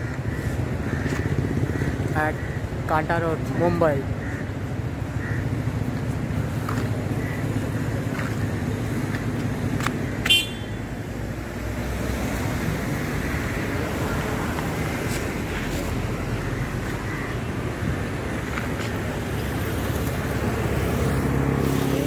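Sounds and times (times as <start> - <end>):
street traffic rumble: 0.0 - 22.0
car horn toot: 10.2 - 10.8.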